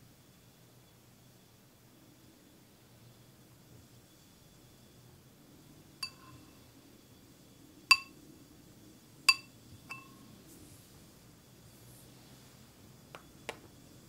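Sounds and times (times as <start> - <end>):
scoop tapping ceramic bowl: 6.0 - 6.4, 7.9 - 8.1, 9.3 - 10.1.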